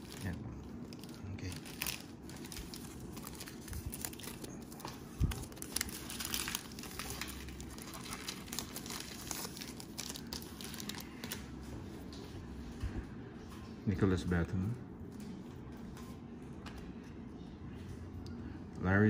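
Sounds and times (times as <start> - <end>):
cellophane wrapper crinkling: 0.0 - 11.5.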